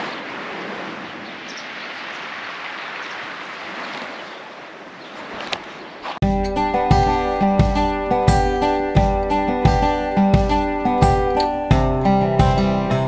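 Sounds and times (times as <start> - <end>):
waves washing on pebbles: 0.0 - 6.2
acoustic guitar music: 6.2 - 13.0.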